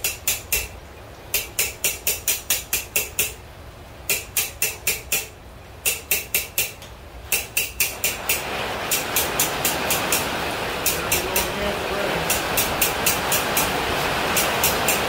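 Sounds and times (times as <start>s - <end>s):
hammer striking steel on anvil: 0.0s - 0.7s, 1.3s - 3.4s, 4.1s - 10.2s
steady rushing noise: 0.0s - 15.0s.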